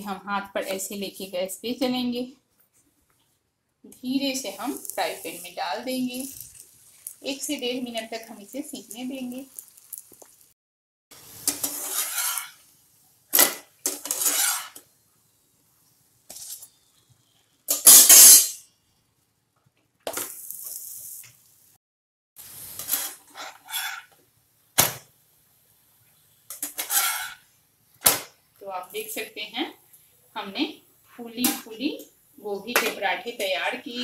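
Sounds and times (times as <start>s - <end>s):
flatbread sizzling: 2.7s - 18.7s, 20.0s - 21.8s, 22.4s - 34.0s
metal spatula scraping a pan: 11.3s - 12.6s, 13.4s - 14.9s, 17.7s - 18.6s, 22.7s - 24.2s, 26.5s - 27.5s.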